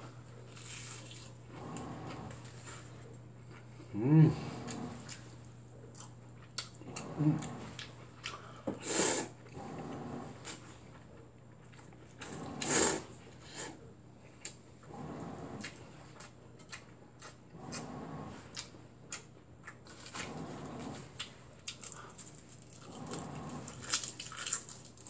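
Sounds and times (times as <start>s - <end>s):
washing machine humming: 0.0s - 25.0s
chewing: 0.4s - 8.6s, 14.3s - 25.0s
person slurping noodles: 8.8s - 10.5s, 12.2s - 13.8s.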